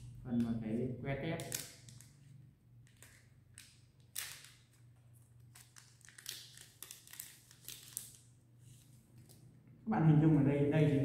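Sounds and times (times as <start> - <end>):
pouch tearing and crinkling: 5.4 - 8.2.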